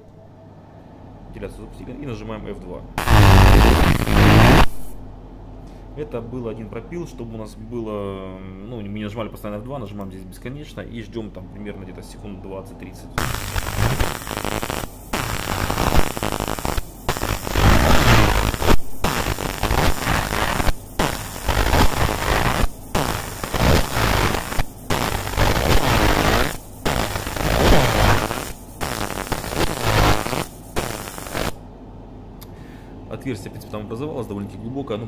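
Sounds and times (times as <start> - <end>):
laser engraving crackling buzz: 3.0 - 5.0, 13.2 - 31.6.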